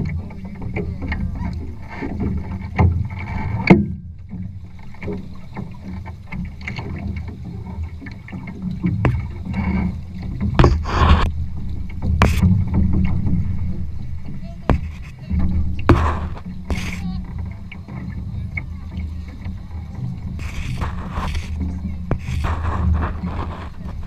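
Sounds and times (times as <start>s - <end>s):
water slapping against hull: 0.0s - 24.0s
wind on microphone: 6.8s - 24.0s
sharp knocks and slaps: 8.8s - 9.6s, 10.3s - 11.3s, 12.0s - 13.4s, 14.6s - 17.0s.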